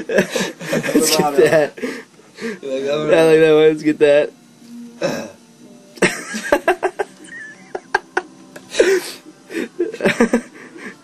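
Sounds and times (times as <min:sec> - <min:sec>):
people laughing: 0:00.0 - 0:01.9, 0:06.0 - 0:11.0.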